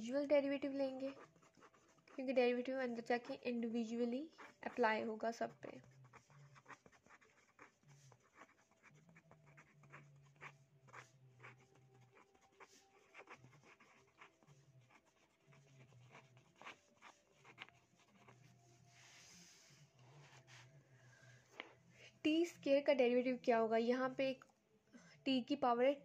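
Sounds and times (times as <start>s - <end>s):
pen writing on paper: 0.2s - 20.7s.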